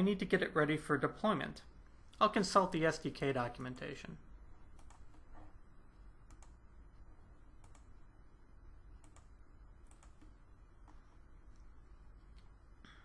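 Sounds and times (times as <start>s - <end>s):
faint low hum: 0.0s - 13.0s
faint computer mouse clicks: 4.7s - 5.3s, 6.2s - 6.6s, 7.6s - 7.9s, 9.0s - 11.7s.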